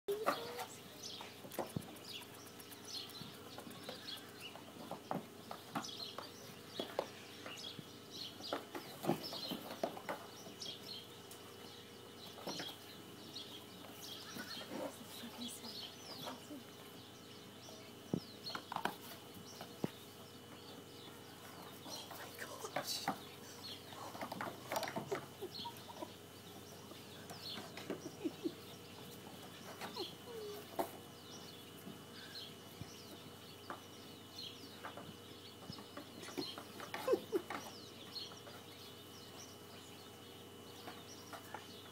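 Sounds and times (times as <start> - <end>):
bird chirps: 19.5 - 30.6.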